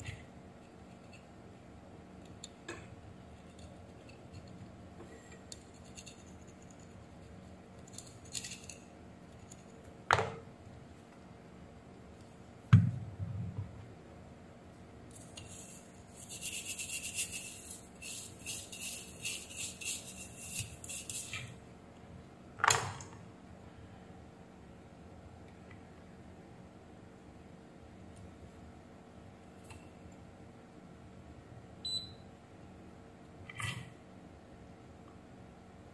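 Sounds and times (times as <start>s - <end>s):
brush scrubbing circuit board: 15.2s - 21.5s.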